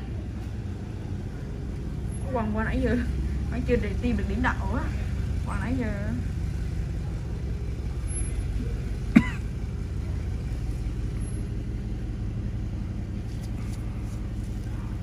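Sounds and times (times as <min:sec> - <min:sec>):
low background rumble: 0:00.0 - 0:15.0
cough-like voice sound: 0:09.1 - 0:09.4.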